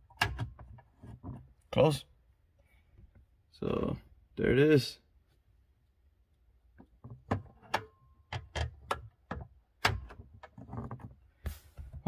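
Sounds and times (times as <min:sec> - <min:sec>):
glove box latch clicks and knocks: 0:06.8 - 0:10.6.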